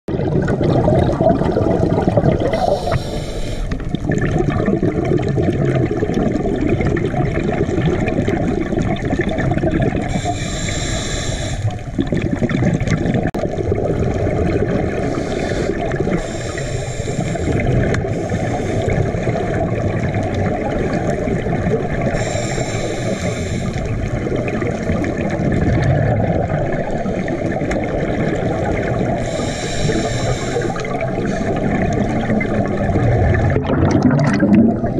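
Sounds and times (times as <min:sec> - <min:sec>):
bubbles gurgling underwater: 0:00.1 - 0:34.9
regulator breath hiss: 0:02.5 - 0:03.8, 0:10.1 - 0:11.8, 0:15.0 - 0:19.0, 0:22.1 - 0:24.0, 0:29.2 - 0:31.6.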